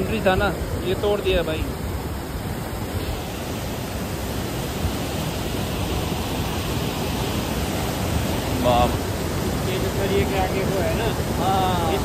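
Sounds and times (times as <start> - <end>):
river torrent roaring: 0.0 - 12.0.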